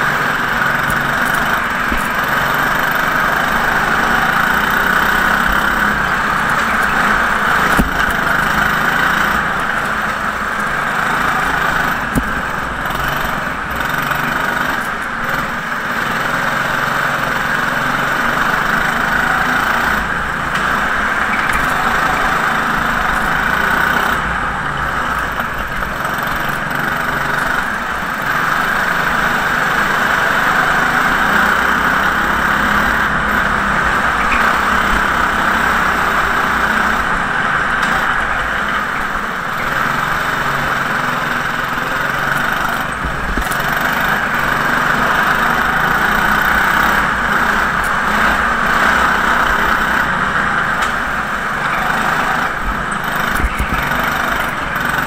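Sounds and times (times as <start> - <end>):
go-kart engine running: 0.0 - 55.0.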